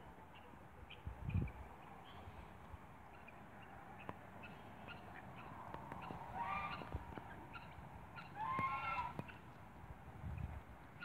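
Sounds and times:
swan honking: 0:04.4 - 0:09.4.

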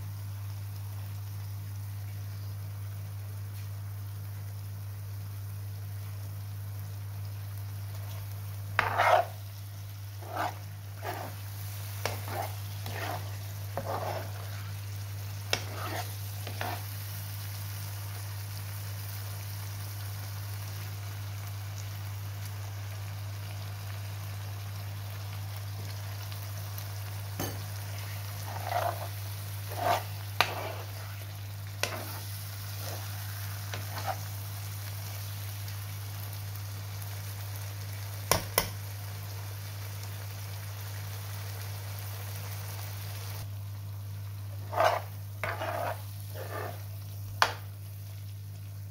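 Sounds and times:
metal spoon scraping pan: 0:08.8 - 0:09.4, 0:10.2 - 0:11.4, 0:12.0 - 0:14.6, 0:15.5 - 0:16.9, 0:28.4 - 0:33.1, 0:33.7 - 0:34.3, 0:44.6 - 0:46.9.

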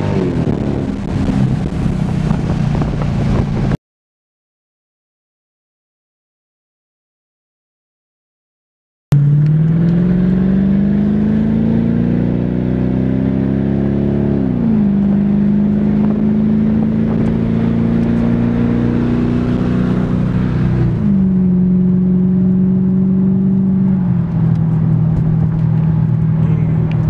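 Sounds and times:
road and tyre rumble: 0:00.0 - 0:03.8, 0:09.1 - 0:27.0
car engine from inside cabin: 0:09.1 - 0:27.0.

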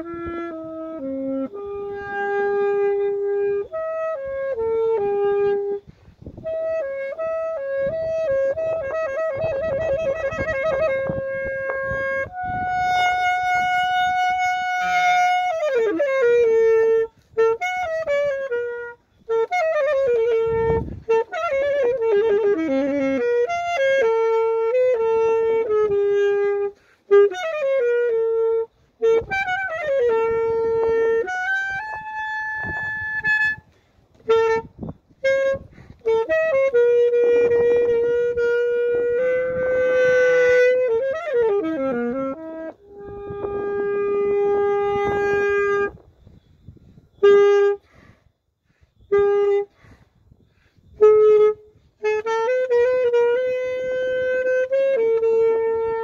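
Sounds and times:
saxophone slow melody: 0:00.0 - 0:56.0.

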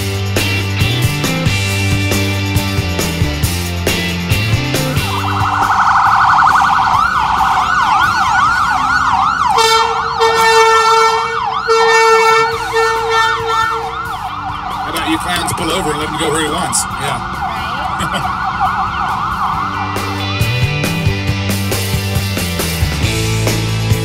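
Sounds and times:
ambulance siren: 0:04.7 - 0:22.8
horn blasts: 0:09.5 - 0:14.1.

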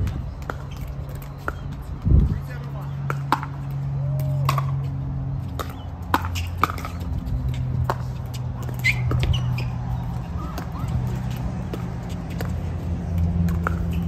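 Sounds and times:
paddles striking pickleball: 0:02.6 - 0:14.0.

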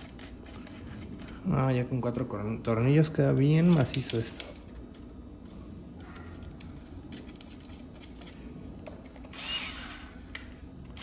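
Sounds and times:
cordless drill motor whine: 0:09.3 - 0:11.0.

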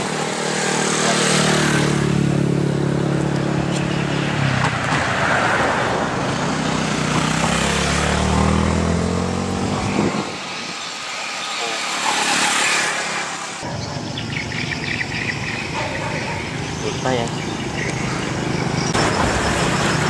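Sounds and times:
vehicle engine passing: 0:00.0 - 0:10.7.

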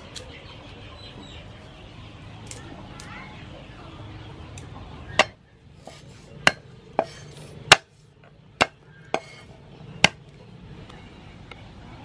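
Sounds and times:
cleaver chopping on wooden block: 0:05.2 - 0:07.9, 0:08.6 - 0:10.2.

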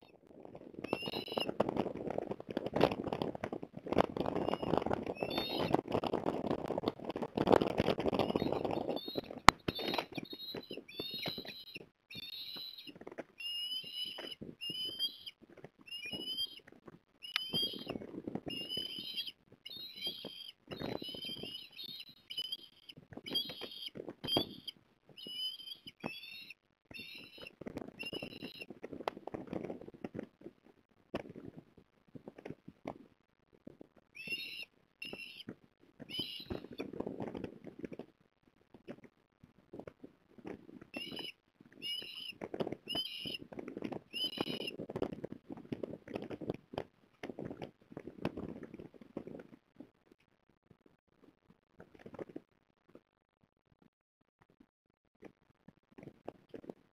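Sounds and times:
osprey chirping: 0:00.8 - 0:01.6, 0:03.9 - 0:06.1, 0:07.1 - 0:28.7, 0:34.1 - 0:36.9, 0:40.9 - 0:43.5, 0:44.1 - 0:44.8.

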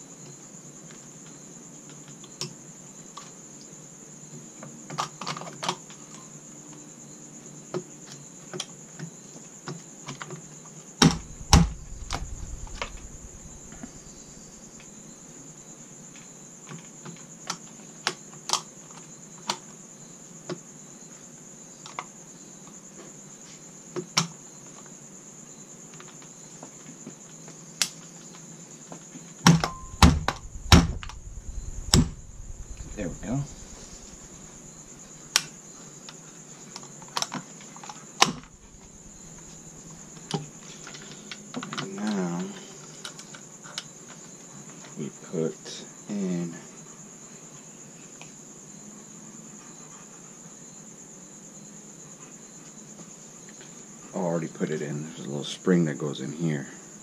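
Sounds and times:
steady high-pitched tone: 0:11.2 - 0:14.8, 0:29.6 - 0:35.2.

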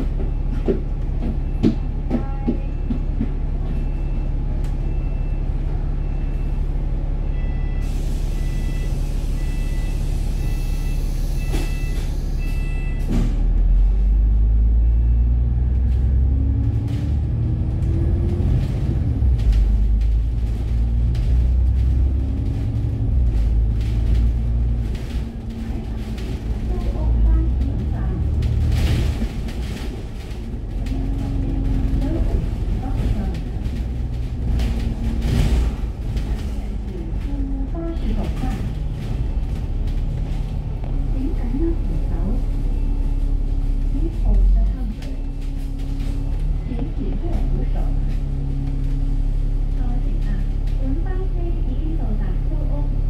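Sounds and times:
bus engine: 0:00.0 - 0:53.0.

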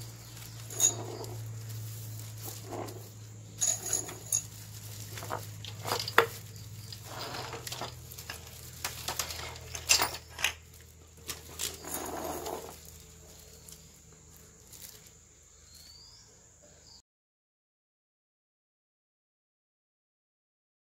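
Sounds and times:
metal parts clinking on table: 0:00.5 - 0:01.5, 0:03.6 - 0:10.7, 0:11.3 - 0:12.8.

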